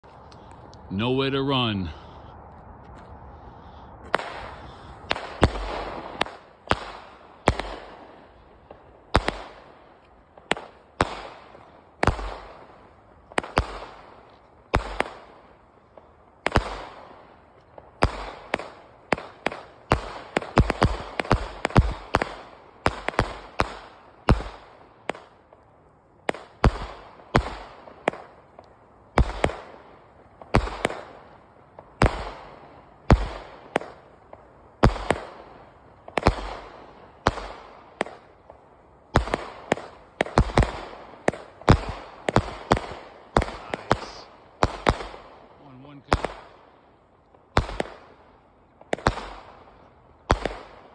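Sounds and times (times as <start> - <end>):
firework cake bangs: 39.1 - 45.2.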